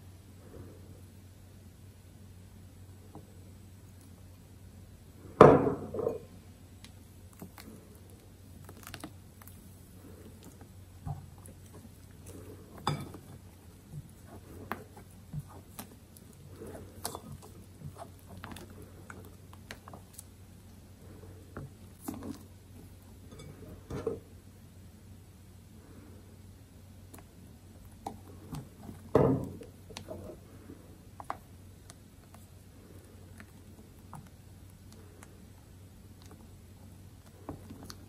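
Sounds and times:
soft squishes of foam: 6.8s - 23.9s, 25.6s - 38.0s
spatula tapping and scraping glass bowl: 12.7s - 13.4s.

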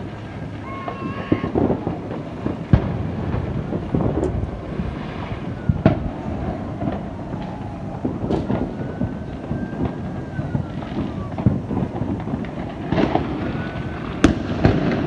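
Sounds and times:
distant fireworks popping and banging: 0.0s - 15.0s
sharp firework bangs: 0.0s - 15.0s
low rumble: 1.9s - 12.9s.

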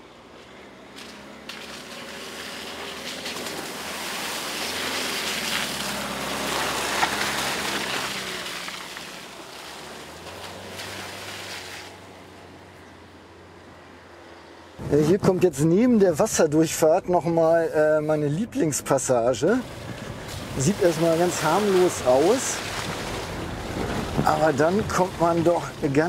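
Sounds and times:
van diesel engine humming: 0.0s - 26.0s
tyres splashing through mud: 0.4s - 12.8s, 19.4s - 26.0s.

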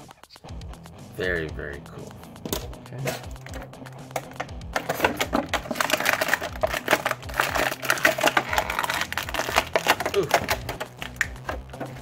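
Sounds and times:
plastic bag crinkling: 4.8s - 11.3s.

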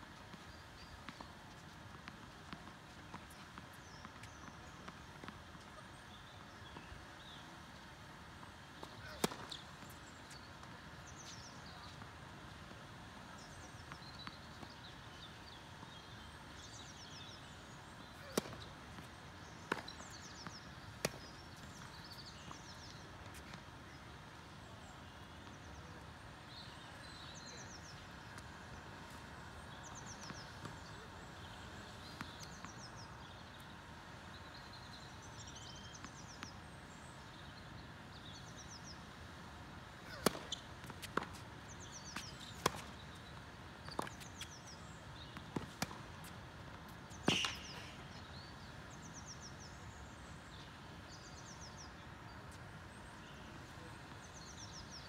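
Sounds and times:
tennis ball bouncing on court: 0.3s - 7.4s, 8.8s - 10.5s, 18.0s - 23.6s, 40.1s - 44.6s, 45.2s - 48.4s
tennis ball struck by rackets: 9.0s - 9.6s, 18.2s - 19.1s, 19.7s - 22.6s, 40.1s - 43.0s, 47.2s - 48.0s.

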